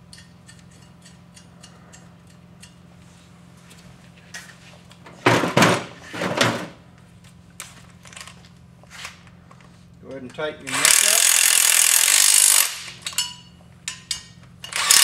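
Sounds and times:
faint steady hum: 0:00.0 - 0:10.7
hard objects clunking and rattling: 0:05.0 - 0:06.8.

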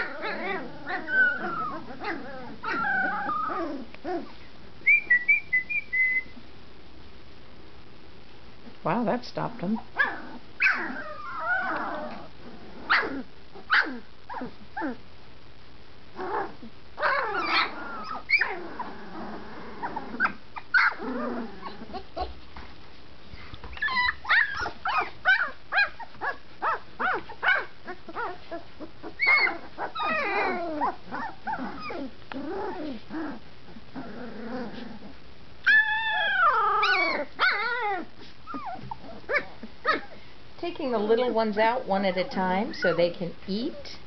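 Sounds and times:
puppy yelps: 0:00.0 - 0:04.3, 0:09.9 - 0:15.0, 0:16.2 - 0:18.9, 0:19.8 - 0:22.3, 0:23.7 - 0:33.4, 0:35.6 - 0:40.2
puppies yipping and whining: 0:00.0 - 0:06.4, 0:09.9 - 0:15.0, 0:16.2 - 0:22.5, 0:23.6 - 0:33.8, 0:34.4 - 0:40.2.

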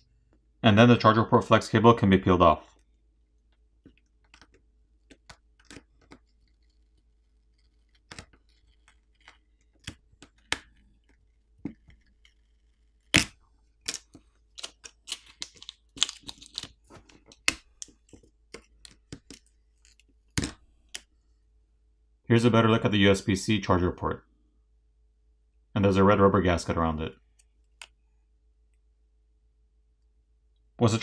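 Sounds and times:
cable peeling clicks and crackles: 0:02.7 - 0:21.1.

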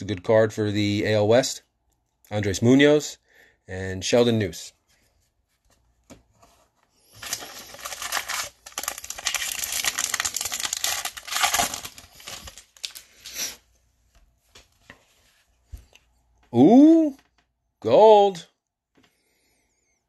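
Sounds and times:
foil wrapper tearing and crinkling: 0:07.1 - 0:13.5.

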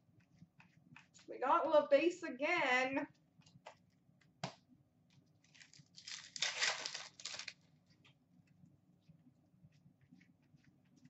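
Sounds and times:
crinkling foil wrappers: 0:05.4 - 0:07.7.

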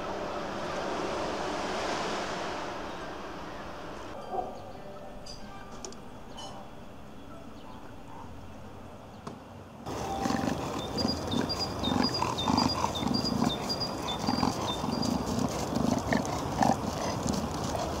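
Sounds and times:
dog panting: 0:09.9 - 0:18.0.

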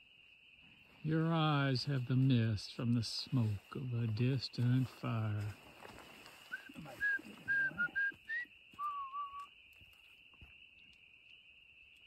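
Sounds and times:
spring peepers chorus: 0:00.0 - 0:12.0
short whistled notes: 0:06.5 - 0:09.5.

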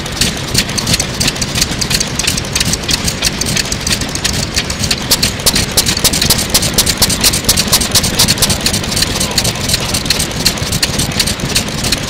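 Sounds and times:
single-cylinder engine running: 0:00.0 - 0:12.0.

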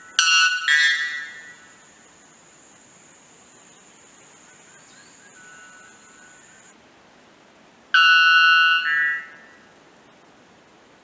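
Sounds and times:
bird two-note call: 0:08.0 - 0:09.6.

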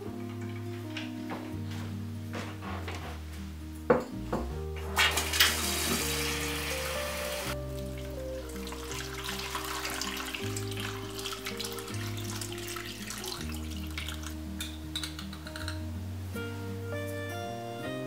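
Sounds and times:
soft instrumental music: 0:00.0 - 0:18.0
water pouring into pot: 0:05.0 - 0:14.4
spoon clicking in glass jar: 0:14.6 - 0:15.8.

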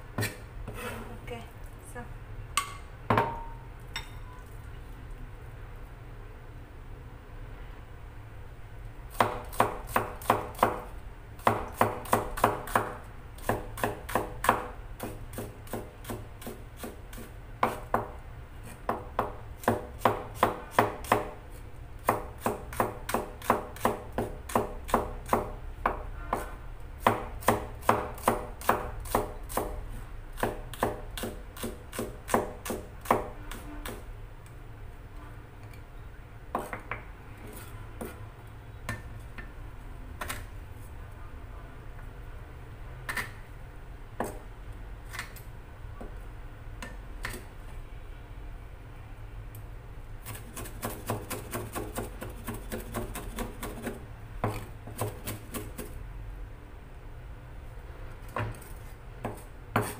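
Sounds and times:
knife chopping on cutting board: 0:11.4 - 0:18.1, 0:22.0 - 0:29.8, 0:30.4 - 0:34.0, 0:58.4 - 0:59.9.

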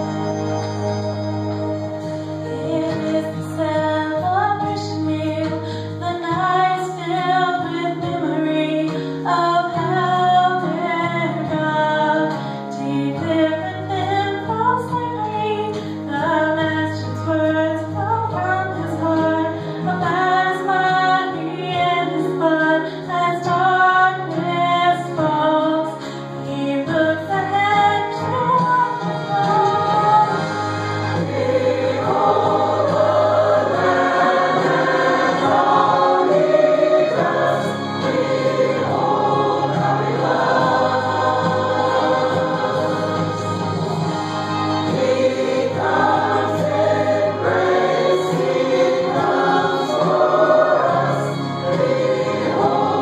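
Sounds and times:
church choir singing: 0:00.0 - 0:11.4, 0:29.4 - 0:53.0.

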